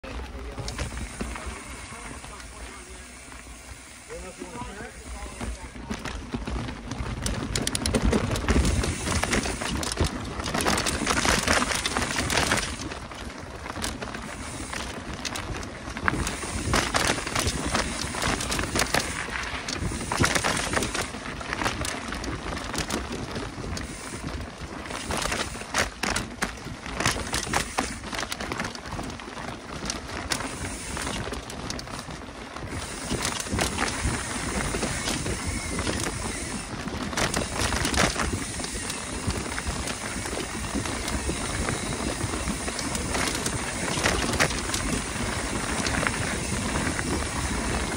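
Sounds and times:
bike rattling over bumps: 0:00.0 - 0:47.9
bike tyre rushing on trail: 0:00.0 - 0:47.9.

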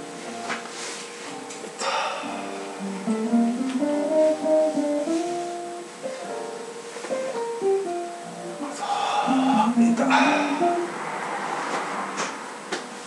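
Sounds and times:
plucked guitar melody: 0:02.4 - 0:11.0.

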